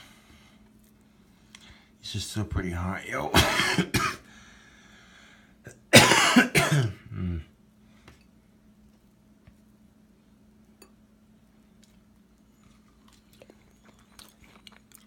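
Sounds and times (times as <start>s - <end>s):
low steady hum: 0.0s - 15.0s
man coughing: 3.3s - 4.3s, 5.7s - 7.5s.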